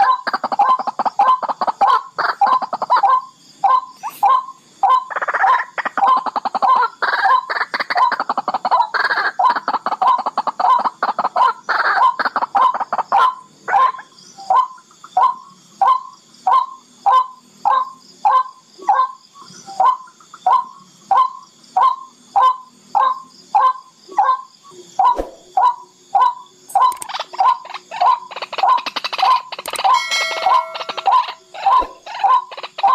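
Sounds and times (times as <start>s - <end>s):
rail calling: 25.0s - 32.9s.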